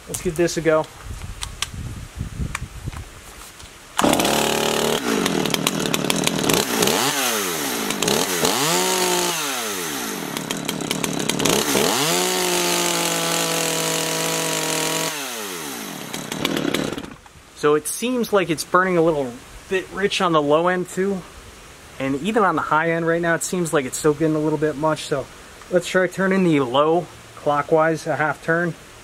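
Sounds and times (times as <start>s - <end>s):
chainsaw engine revving: 4.0s - 17.2s.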